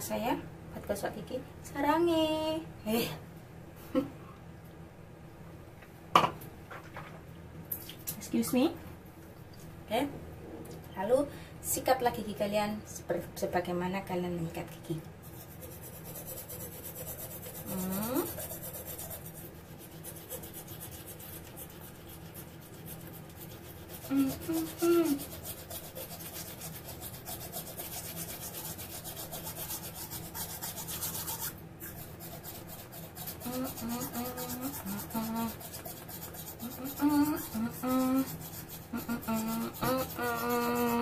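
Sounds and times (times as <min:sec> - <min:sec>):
toothbrush scrubbing teeth: 0:15.2 - 0:41.0
person humming: 0:17.6 - 0:18.4, 0:24.0 - 0:25.4, 0:33.4 - 0:35.7, 0:36.6 - 0:41.0.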